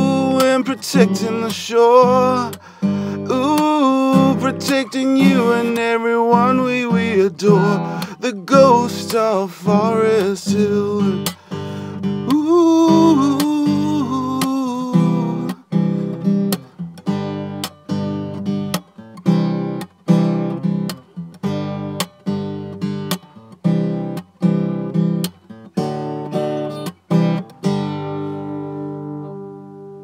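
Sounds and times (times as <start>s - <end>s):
person singing: 0.0s - 15.7s
acoustic guitar strumming chords: 0.0s - 30.0s.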